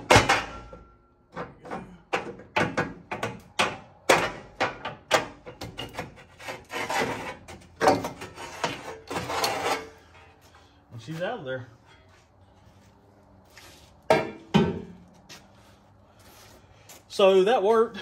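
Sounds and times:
metal scraping and knocking: 0:00.0 - 0:10.5.

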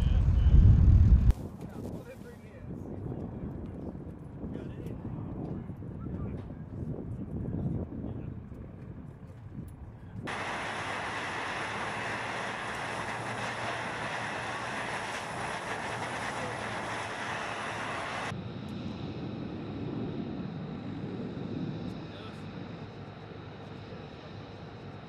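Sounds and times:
jet engine rush and whine: 0:00.0 - 0:02.8, 0:10.3 - 0:25.0.

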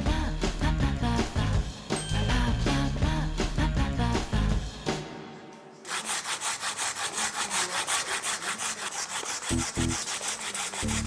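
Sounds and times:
background music: 0:00.0 - 0:05.9
potatoes rasping on a grater: 0:05.9 - 0:11.0.

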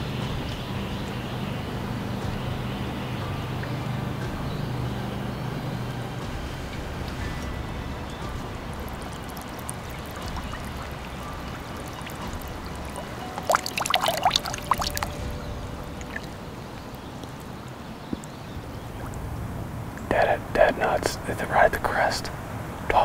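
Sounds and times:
legs sloshing through water: 0:06.5 - 0:20.1
loud water splashing: 0:06.8 - 0:20.0.

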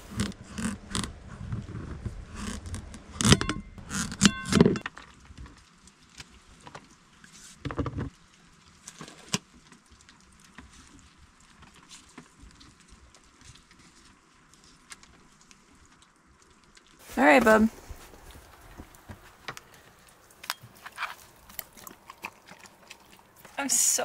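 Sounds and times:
food handling rustles and clicks: 0:02.8 - 0:23.6
plate ringing: 0:03.3 - 0:04.8.

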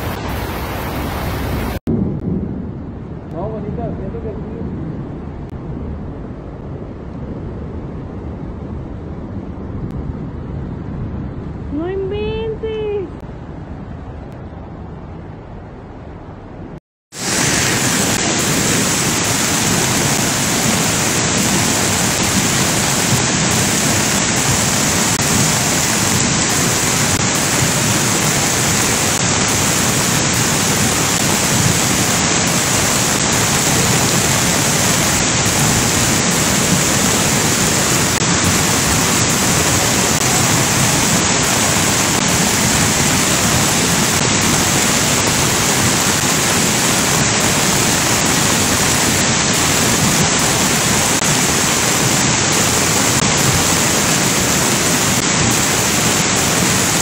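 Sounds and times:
floodwater rushing: 0:00.0 - 0:01.8, 0:17.1 - 0:57.0.

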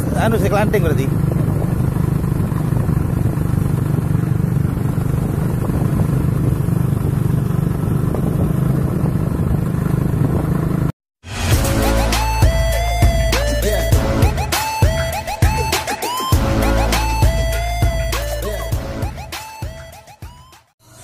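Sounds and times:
motorcycle engine droning: 0:00.0 - 0:10.9
road and wind noise: 0:00.0 - 0:10.9.

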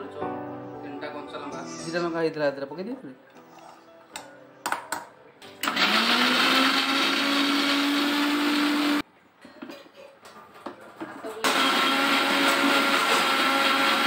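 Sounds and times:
mixer grinder motor running: 0:05.6 - 0:09.0, 0:11.4 - 0:14.0.

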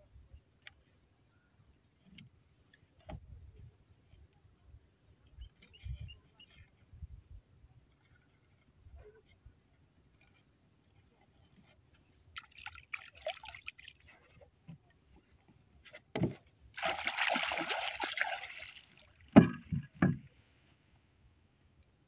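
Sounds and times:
water splashing at boat: 0:12.3 - 0:20.3
knocks on wooden planks: 0:16.1 - 0:16.4, 0:19.3 - 0:20.3.

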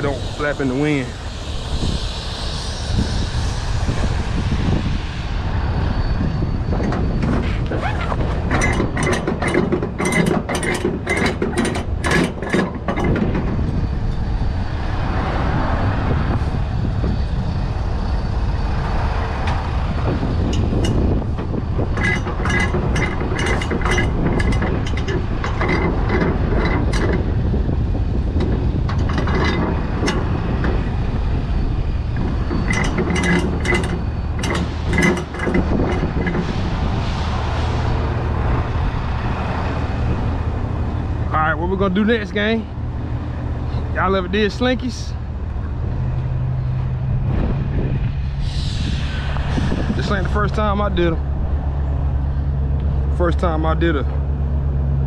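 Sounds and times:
low rumble: 0:00.0 - 0:55.0
ratchet winch pawls clicking: 0:08.1 - 0:13.4, 0:20.4 - 0:27.5, 0:32.2 - 0:36.7.

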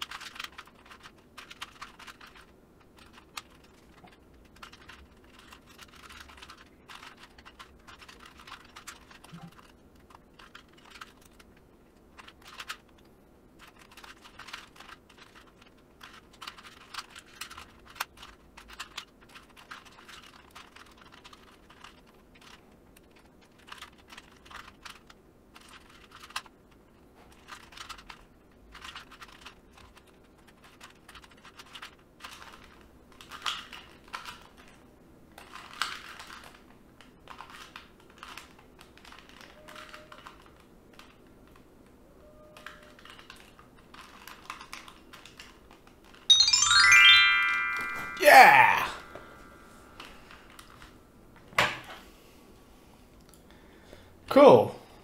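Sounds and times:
puzzle cube clicking: 0:00.0 - 0:11.4, 0:12.2 - 0:12.8.

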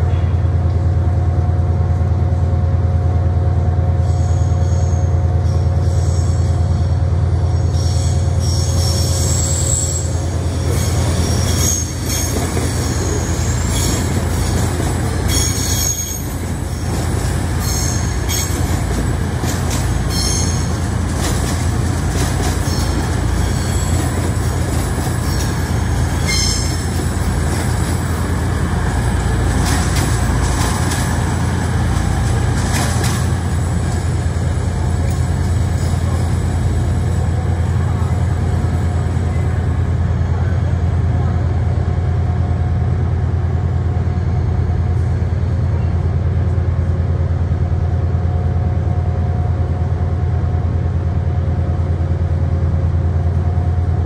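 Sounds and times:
diesel train running slowly: 0:00.0 - 0:54.0
train wheels squealing: 0:03.9 - 0:21.5, 0:22.1 - 0:30.8.

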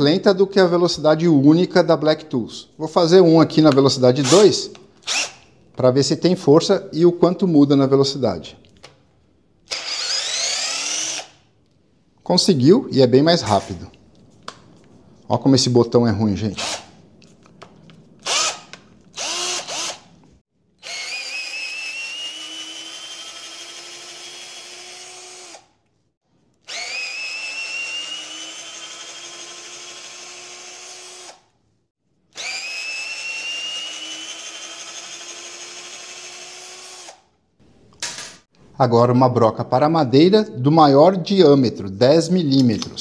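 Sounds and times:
cordless drill motor whining: 0:04.2 - 0:05.5, 0:09.7 - 0:11.4, 0:18.2 - 0:20.1, 0:20.8 - 0:25.7, 0:26.6 - 0:31.4, 0:32.3 - 0:37.2.

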